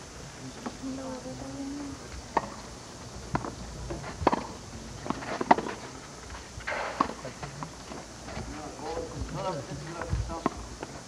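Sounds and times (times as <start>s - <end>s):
tennis ball hit with rackets: 4.2s - 4.5s.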